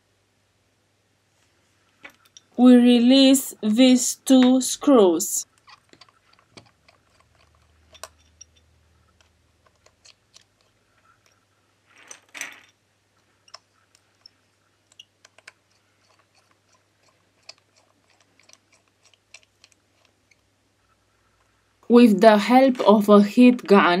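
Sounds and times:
screwdriver clicks and ticks: 13.5 - 20.4.

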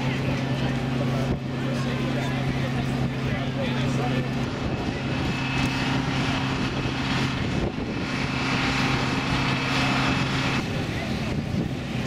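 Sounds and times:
engine drone: 0.0 - 12.0
high whine: 0.0 - 12.0.

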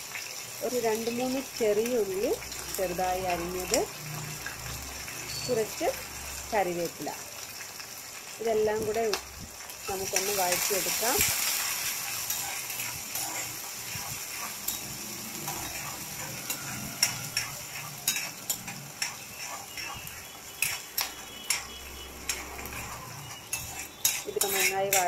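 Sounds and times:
vegetables sizzling in hot oil: 0.0 - 25.0
spatula scraping and knocking pan: 11.6 - 25.0.

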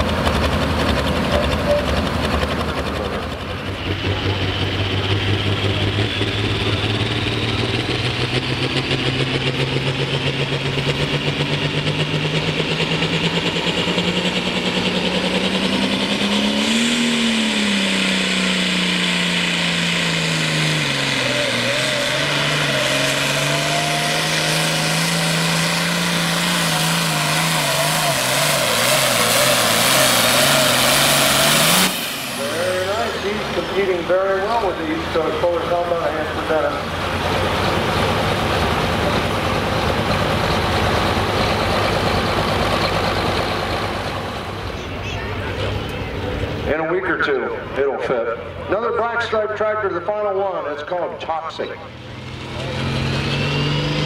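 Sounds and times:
diesel tractor engine under load: 0.0 - 54.0.

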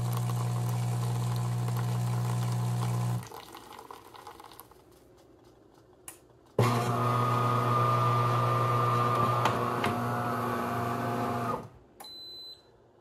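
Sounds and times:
espresso machine humming: 0.0 - 3.2, 6.6 - 11.7.

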